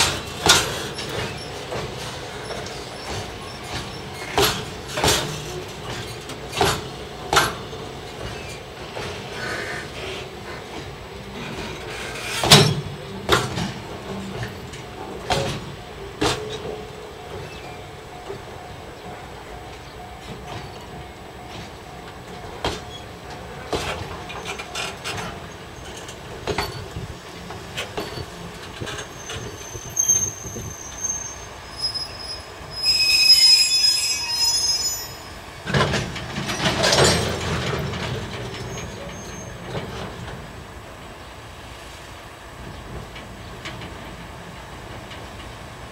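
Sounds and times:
wagons clattering and rumbling: 0.0s - 19.2s, 19.8s - 31.4s, 35.6s - 40.5s, 42.7s - 45.9s
diesel locomotive: 0.0s - 45.9s
wagon wheels clicking and clanking: 23.8s - 27.0s, 35.7s - 40.0s
wheels squealing: 28.0s - 39.8s.

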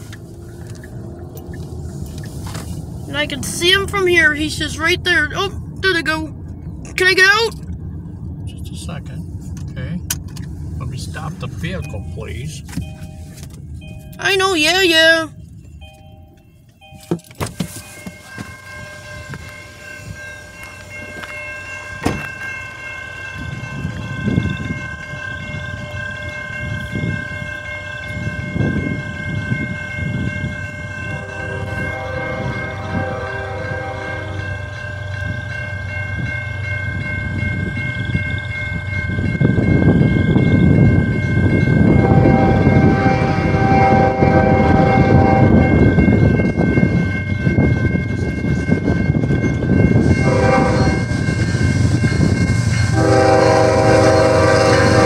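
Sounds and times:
railroad crossing bells: 0.0s - 55.0s
train rumble: 0.0s - 55.0s
train chime horn: 17.8s - 55.0s.

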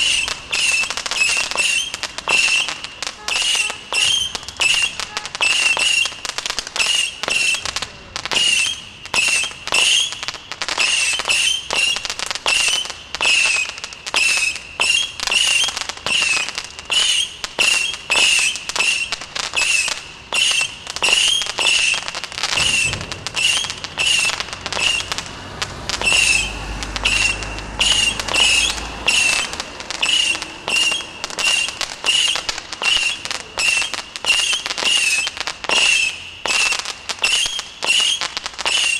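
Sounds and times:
firework crackle: 0.0s - 38.9s
whistling firework shots: 0.0s - 38.9s
low rumble: 22.6s - 31.2s.

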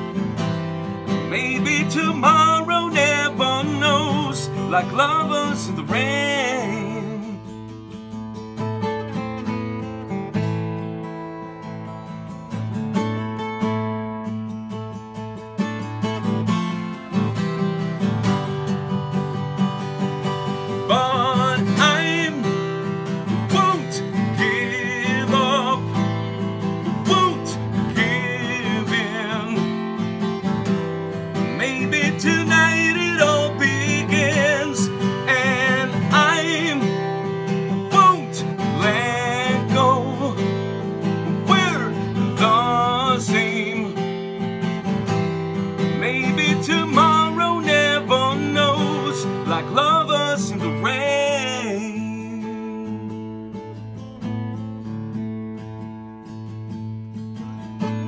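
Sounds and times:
acoustic guitar strumming: 0.0s - 58.0s
man singing wordless melody: 1.2s - 7.6s, 20.7s - 30.2s, 31.3s - 44.5s, 45.8s - 53.5s.

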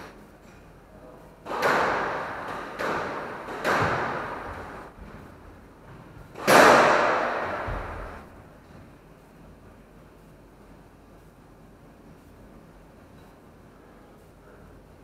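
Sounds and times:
squash ball struck hard: 1.5s - 4.9s, 6.4s - 8.2s.

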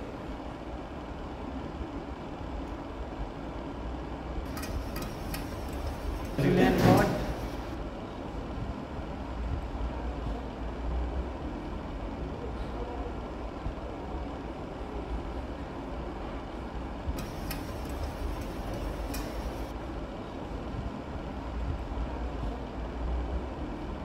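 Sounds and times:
low rumble of machinery: 0.0s - 24.0s.

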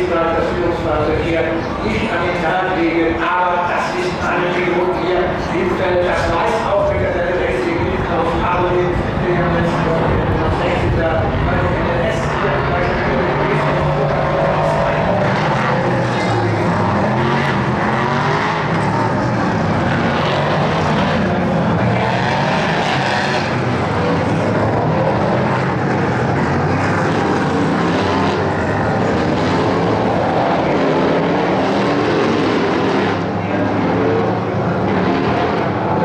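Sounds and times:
race car engines passing: 0.0s - 36.0s.

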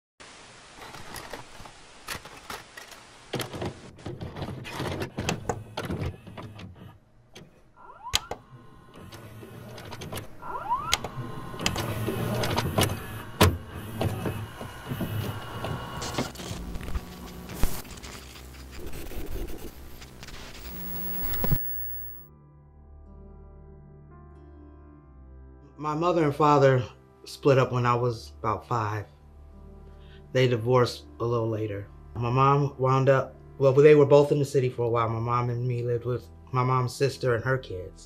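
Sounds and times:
tape hiss and static: 0.2s - 22.3s
mechanical clicks and clunks: 0.8s - 17.0s
tape motor whirring: 5.1s - 17.9s, 18.8s - 22.3s.

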